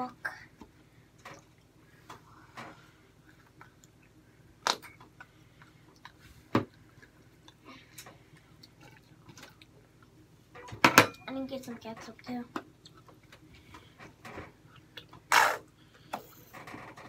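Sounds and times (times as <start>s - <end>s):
faint chewing: 3.2s - 10.2s, 12.7s - 14.0s.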